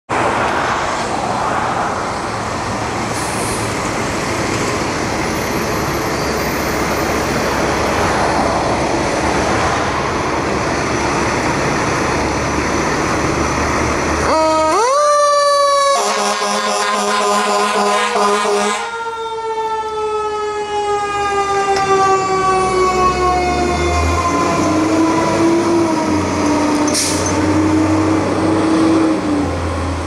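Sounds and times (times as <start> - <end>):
siren wailing: 14.2 - 26.9.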